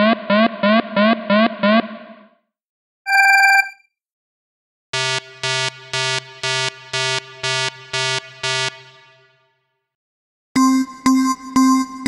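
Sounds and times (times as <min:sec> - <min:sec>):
bright electronic tone: 0:03.1 - 0:03.8
ringing alarm beeps: 0:03.1 - 0:03.8.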